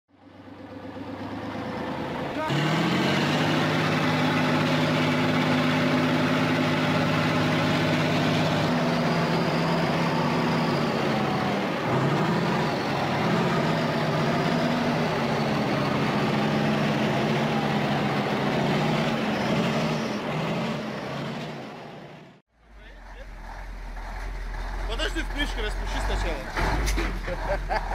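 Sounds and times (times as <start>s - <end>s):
tractor diesel engine under load: 0.1s - 27.9s.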